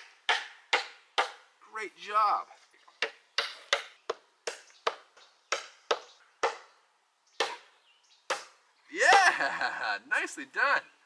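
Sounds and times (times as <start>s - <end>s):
hammering nail into wood: 0.3s - 1.4s, 3.0s - 6.6s.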